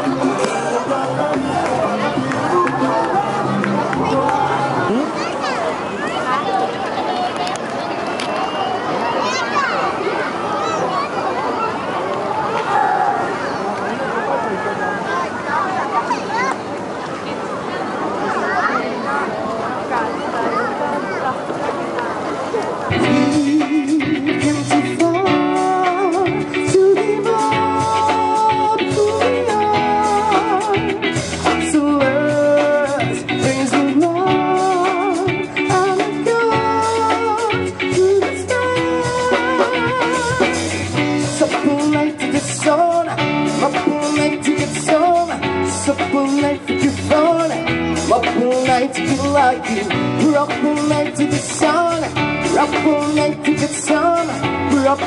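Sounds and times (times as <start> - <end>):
electric guitars: 22.8 - 55.0
drum kit playing a steady beat: 22.9 - 55.0.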